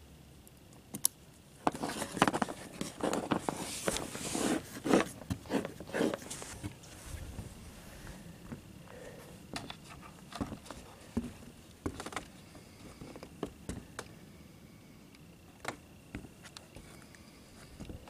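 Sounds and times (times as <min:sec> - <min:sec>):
footsteps on roof: 0:10.4 - 0:12.2.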